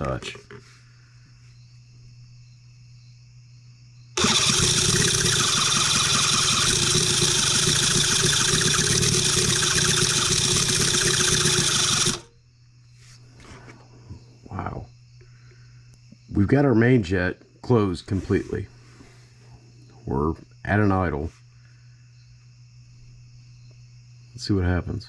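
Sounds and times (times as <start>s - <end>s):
electric starter cranking engine: 4.2s - 12.3s.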